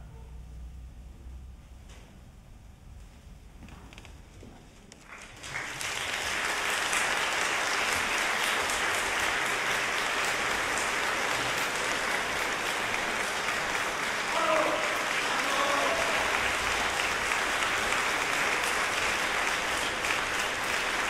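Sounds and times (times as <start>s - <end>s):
audience applauding: 5.0s - 21.0s.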